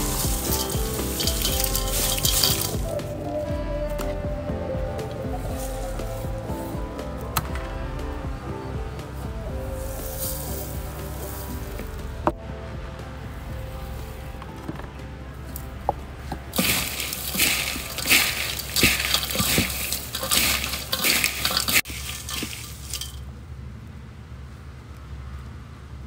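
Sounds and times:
scrapes and clinks on metal: 0:00.0 - 0:03.0, 0:16.6 - 0:23.2
grasshoppers rustling in metal bowl: 0:00.0 - 0:03.2, 0:09.8 - 0:11.9, 0:16.5 - 0:23.3.

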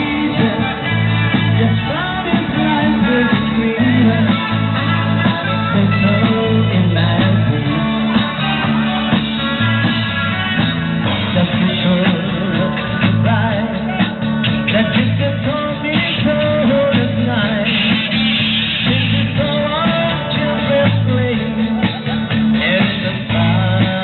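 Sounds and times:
lead vocal singing: 0:00.0 - 0:24.0
rock band playing: 0:00.0 - 0:24.0.

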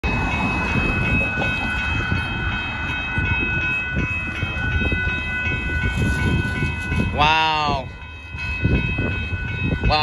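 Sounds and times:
railroad crossing bell ringing: 0:00.0 - 0:10.0.

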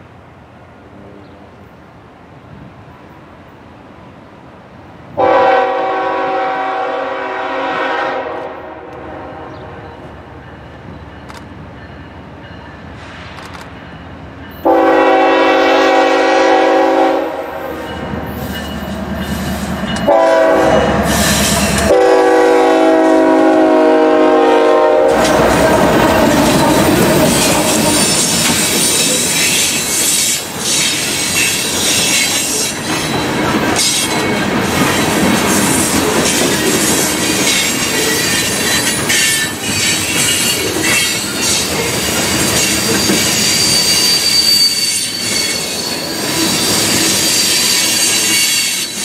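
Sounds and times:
train rumble: 0:00.0 - 0:49.0
locomotive air horn blasts: 0:05.2 - 0:09.7, 0:14.6 - 0:17.9, 0:20.0 - 0:25.5.

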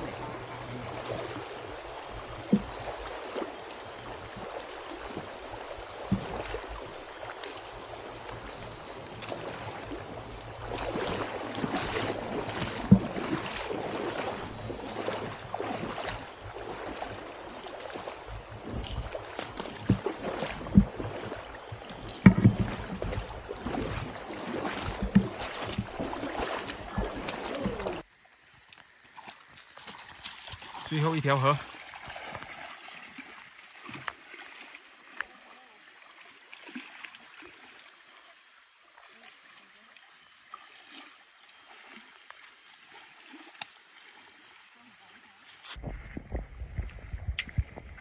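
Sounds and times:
steady high-pitched tone: 0:00.0 - 0:21.7, 0:24.0 - 0:45.8
running water rushing: 0:00.0 - 0:45.8
boots splashing through stream: 0:10.7 - 0:18.2, 0:19.3 - 0:38.2.

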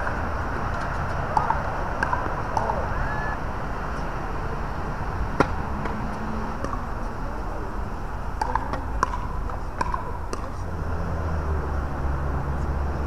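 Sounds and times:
tennis ball bouncing on hard court: 0:00.0 - 0:02.8, 0:05.4 - 0:06.0, 0:06.6 - 0:06.9, 0:08.4 - 0:10.6
background noise: 0:00.0 - 0:13.0
tennis racket striking ball: 0:00.8 - 0:02.8, 0:05.4 - 0:06.0, 0:06.6 - 0:06.9, 0:08.4 - 0:10.6.

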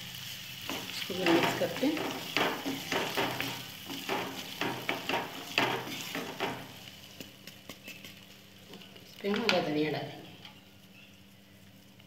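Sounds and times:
wooden spatula scraping pan: 0:00.7 - 0:06.7.

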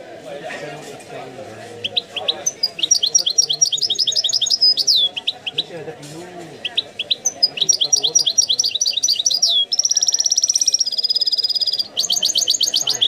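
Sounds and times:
goldfinch chirping: 0:01.9 - 0:05.8, 0:06.6 - 0:13.0
goldfinch trilling: 0:02.0 - 0:05.7, 0:06.7 - 0:13.0.

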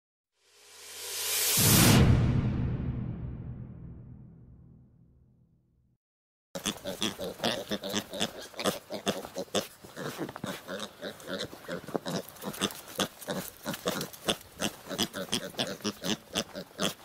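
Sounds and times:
piglet grunting: 0:06.6 - 0:17.0.

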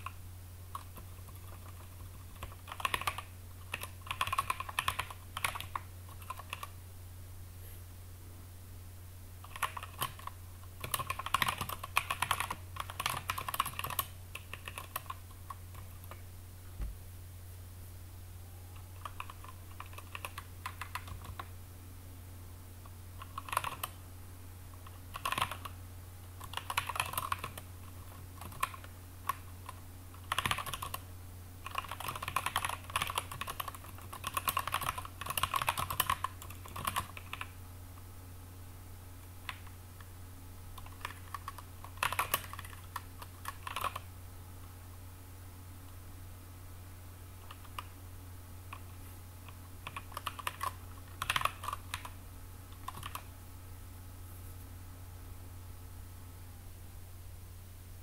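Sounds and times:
computer keyboard typing: 0:00.0 - 0:06.8, 0:09.4 - 0:16.2, 0:18.8 - 0:21.5, 0:23.2 - 0:24.0, 0:24.8 - 0:25.8, 0:26.4 - 0:31.0, 0:31.6 - 0:37.6, 0:39.4 - 0:39.8, 0:40.8 - 0:44.1, 0:47.4 - 0:48.0, 0:48.7 - 0:53.3
steady low hum: 0:00.0 - 0:58.0.

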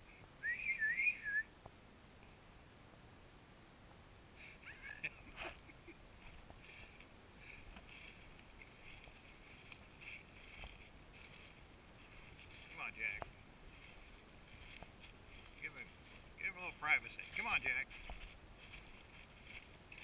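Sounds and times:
faint high chirps: 0:00.0 - 0:01.5.

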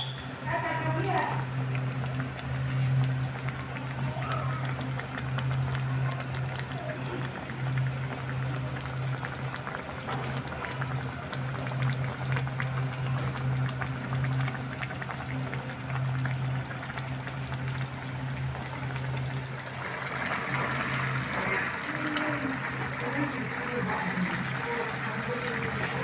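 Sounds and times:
gas stove hum: 0:00.0 - 0:26.0
curry bubbling in a pan: 0:00.3 - 0:26.0.

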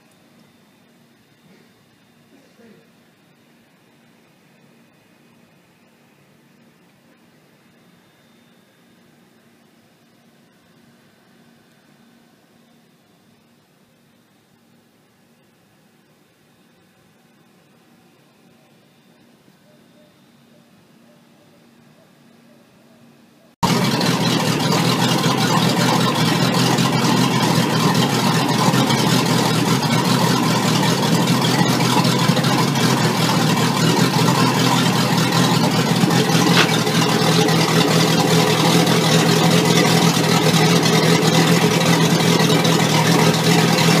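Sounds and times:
boat engine running: 0:23.6 - 0:44.0
propeller spinning throwing water: 0:23.6 - 0:44.0.

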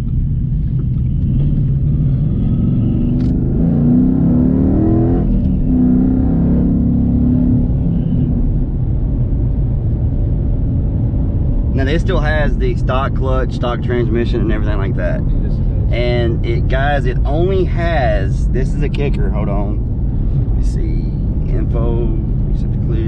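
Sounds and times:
car engine accelerating: 0:00.0 - 0:23.0.

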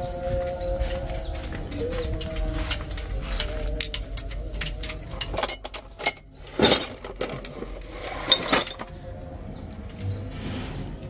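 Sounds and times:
tools rattling: 0:01.7 - 0:09.0
metal tools clinking in tray: 0:01.8 - 0:09.0.

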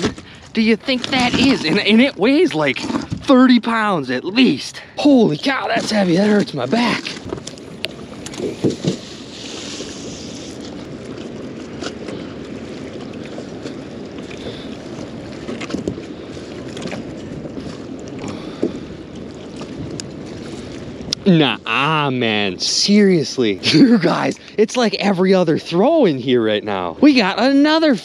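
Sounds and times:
water slapping boat hull: 0:00.0 - 0:28.0
wind buffeting microphone: 0:00.0 - 0:28.0.

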